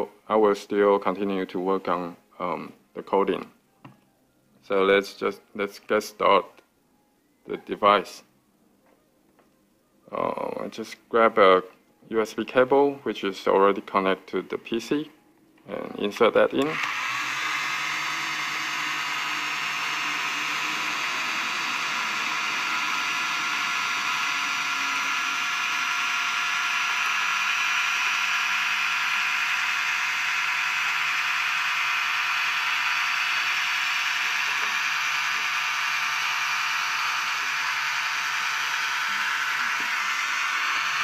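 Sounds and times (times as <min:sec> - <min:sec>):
small fan whirring: 0:08.3 - 0:41.0
high motor whine: 0:16.6 - 0:41.0.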